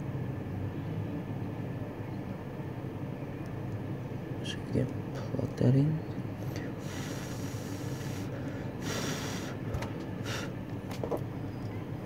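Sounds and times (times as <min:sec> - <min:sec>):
low room hum: 0:00.0 - 0:12.0
person breathing out: 0:06.6 - 0:10.6.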